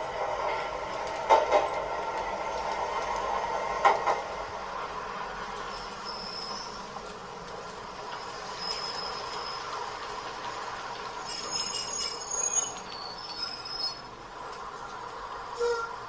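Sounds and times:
model train motor and wheel rumble: 0.0 - 15.9
high wheel squeals: 5.7 - 6.9, 8.1 - 9.8, 11.2 - 14.1.

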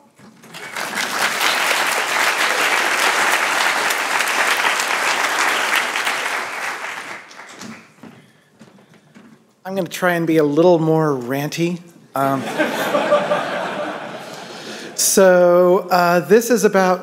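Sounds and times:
audience applauding: 0.2 - 8.0.

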